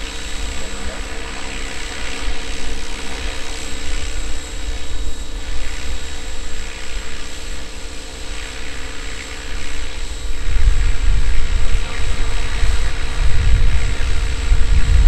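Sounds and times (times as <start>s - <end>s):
model helicopter motor whine: 0.0s - 15.0s
wind rumble on microphone: 9.5s - 15.0s.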